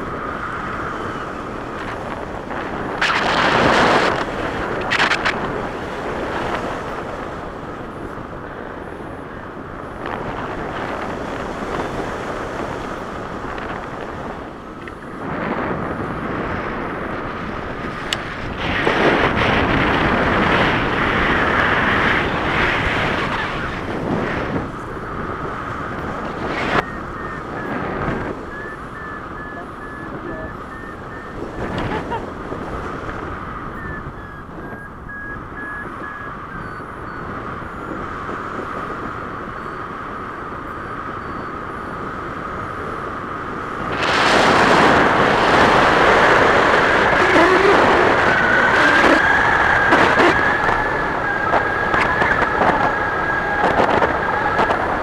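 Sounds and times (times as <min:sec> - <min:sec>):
wind rushing over microphone: 0:00.0 - 0:55.0
short steady beeps: 0:28.6 - 0:31.4.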